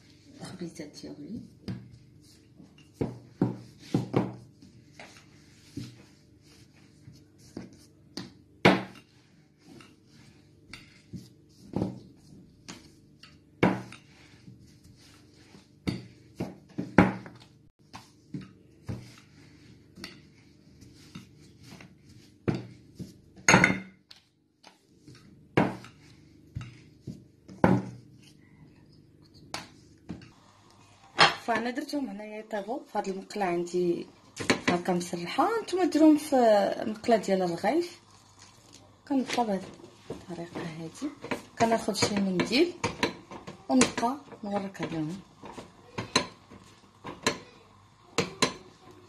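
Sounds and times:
rolling pin knocking on wooden board: 3.0 - 4.4.

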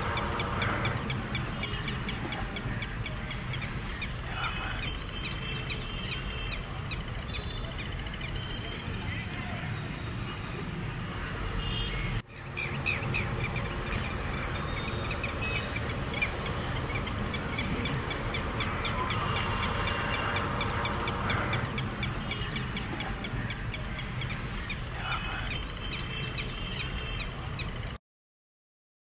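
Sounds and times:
waterbirds calling: 0.0 - 27.9.

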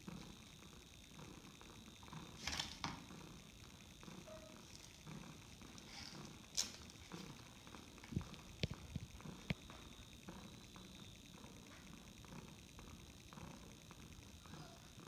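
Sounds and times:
cat purring: 0.0 - 15.0
faint taps and rustles: 6.6 - 10.7.

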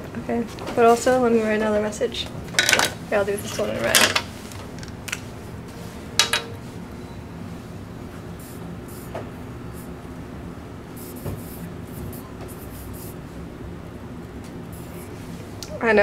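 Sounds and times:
low room hum: 0.0 - 16.0
marker writing on whiteboard: 11.0 - 13.2.

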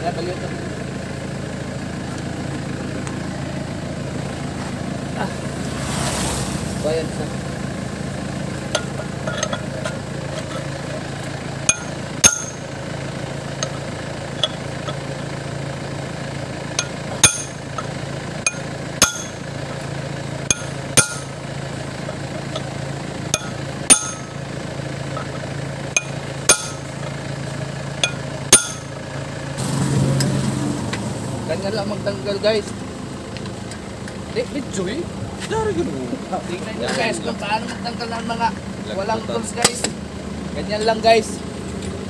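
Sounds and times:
low hum: 5.3 - 31.4
hammer striking metal punch: 8.7 - 10.0, 11.7 - 12.8, 14.4 - 15.0, 16.8 - 19.4, 20.5 - 21.4, 23.4 - 24.4, 26.0 - 27.1, 28.0 - 29.0.

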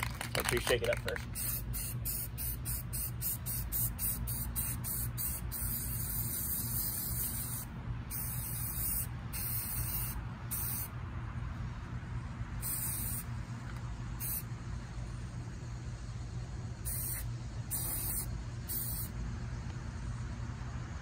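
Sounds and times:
spray paint can hissing: 0.5 - 10.9, 12.6 - 13.3, 14.2 - 14.5, 16.8 - 19.1.

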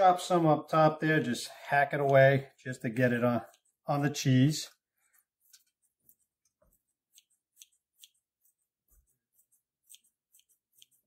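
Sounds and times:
scissors snipping leaves: 9.8 - 11.0.

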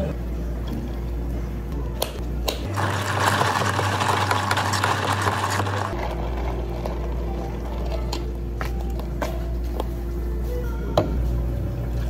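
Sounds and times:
ice clattering in plastic cup: 2.7 - 8.2.

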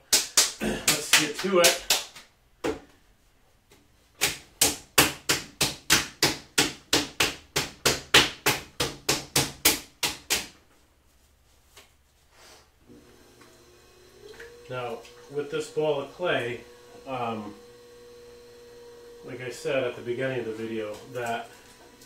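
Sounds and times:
hands slapping clay: 0.0 - 2.3, 4.2 - 10.6.

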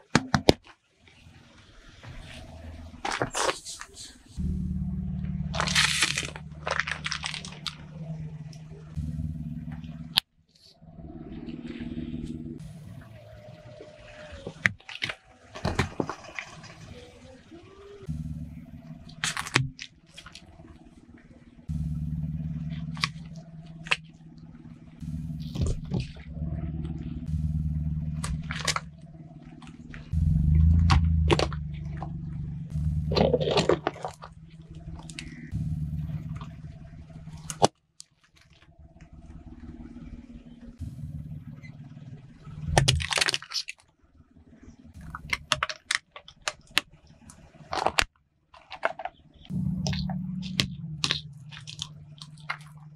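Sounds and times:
car engine hum: 1.1 - 48.1, 48.7 - 52.9
tyre crushing plastic: 5.5 - 7.8, 42.7 - 43.8.

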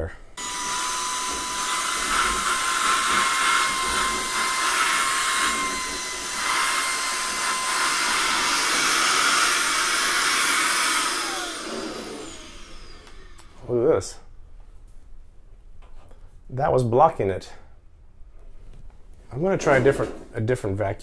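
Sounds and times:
vacuum motor whining: 0.4 - 13.6.

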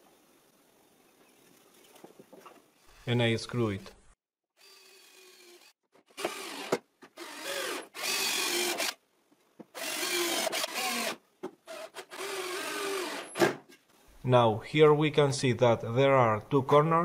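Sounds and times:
cordless drill driving screws: 4.6 - 9.0, 9.8 - 13.4.

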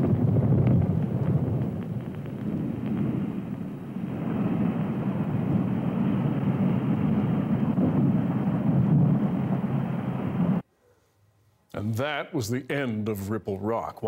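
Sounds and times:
low rumbling explosion roar: 0.0 - 10.6.

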